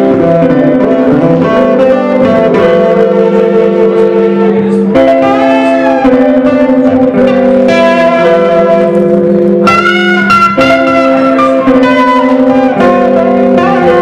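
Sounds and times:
electric guitar through amplifier: 0:00.0 - 0:14.0.

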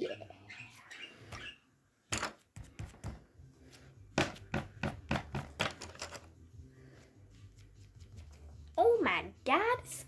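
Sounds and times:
objects knocking on tabletop: 0:02.1 - 0:03.3, 0:04.2 - 0:06.3.

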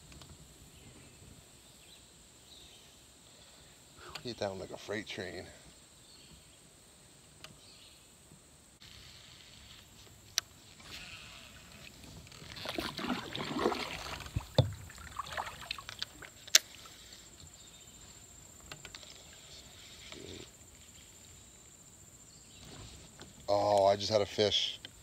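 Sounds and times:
paddle strokes splashing water: 0:12.0 - 0:17.2.

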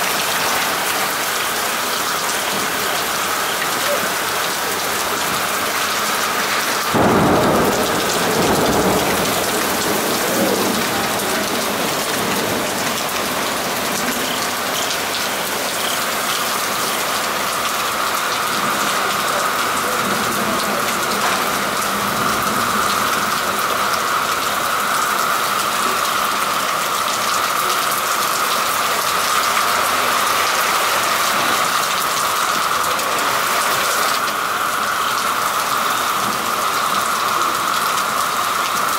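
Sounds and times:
heavy rain on pavement: 0:00.0 - 0:38.9.

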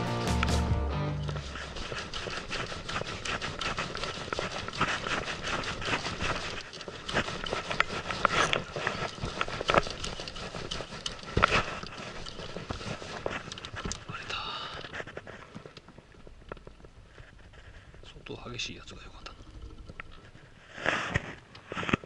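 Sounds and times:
fishing reel clicking and knocking: 0:01.5 - 0:14.1.

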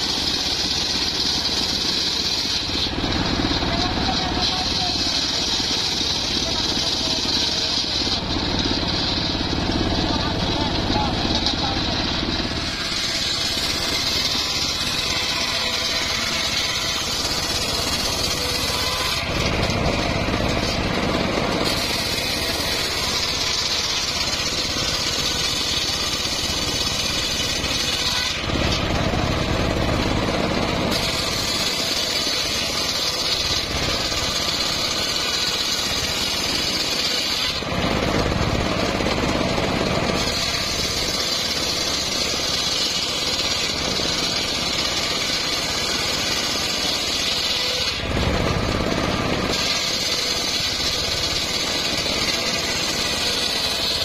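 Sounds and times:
circular saw cutting wood: 0:00.0 - 0:54.0
engine running: 0:00.0 - 0:54.0.

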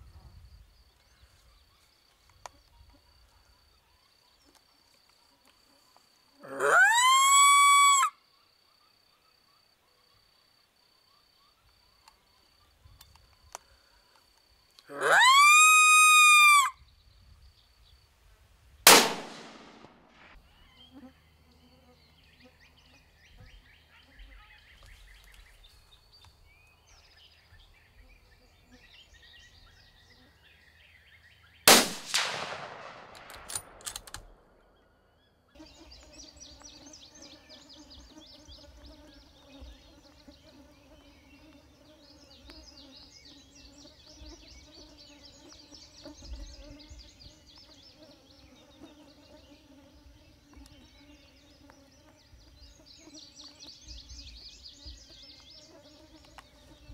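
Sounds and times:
outdoor chirping: 0:00.0 - 0:56.9
gunshot: 0:18.9 - 0:20.3, 0:31.7 - 0:33.8.

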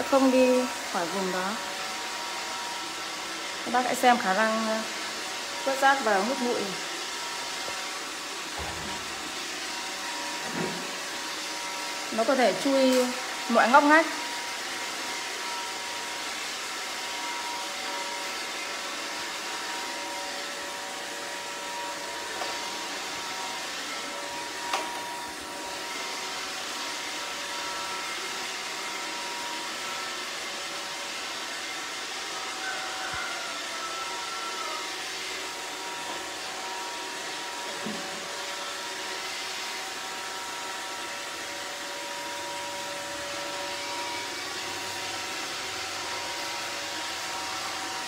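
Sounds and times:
robot vacuum whirring: 0:00.1 - 0:47.8.

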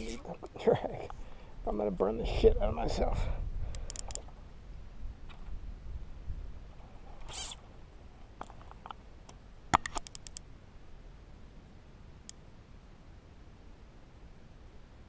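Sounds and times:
fly reel clicking: 0:03.8 - 0:04.2, 0:07.3 - 0:07.6
fishing line hiss: 0:07.2 - 0:07.6.

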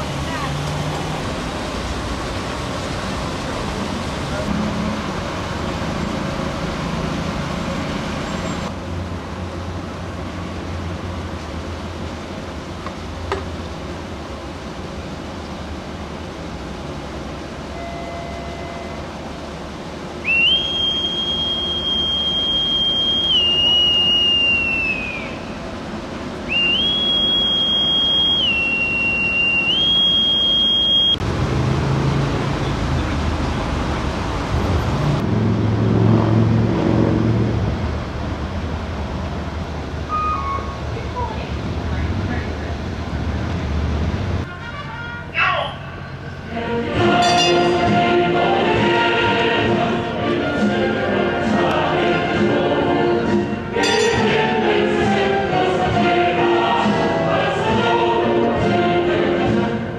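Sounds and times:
outdoor background noise: 0:00.0 - 0:59.9
shrill whistle: 0:20.2 - 0:25.6, 0:26.5 - 0:31.2, 0:40.1 - 0:40.8.

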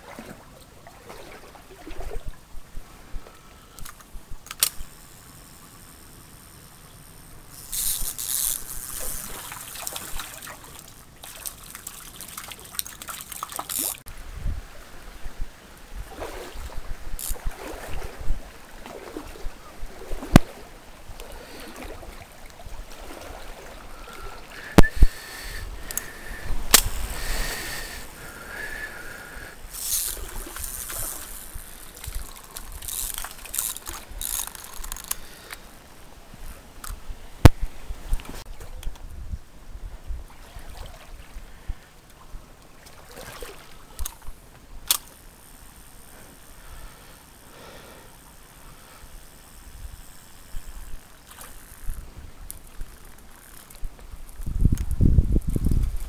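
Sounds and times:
stream trickling: 0:00.0 - 0:56.0
sharp clicks: 0:03.7 - 0:10.1, 0:25.8 - 0:28.1, 0:44.9 - 0:45.2.

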